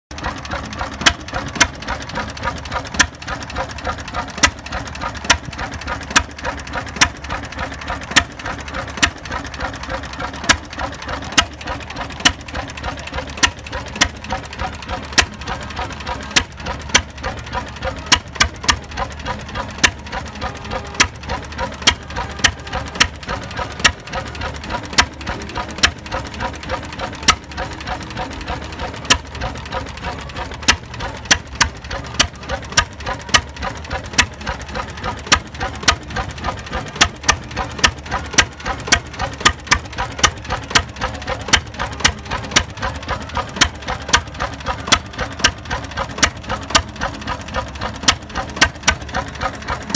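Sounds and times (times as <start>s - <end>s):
fast mechanical ticking: 0.1s - 49.9s
stationary engine beats: 0.1s - 49.9s.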